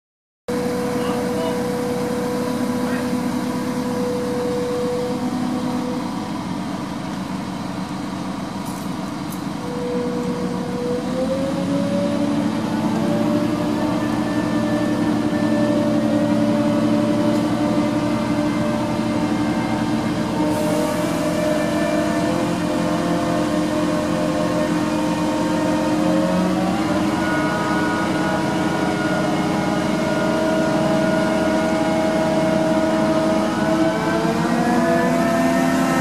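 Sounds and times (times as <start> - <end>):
crane diesel engine running: 0.5 - 36.0.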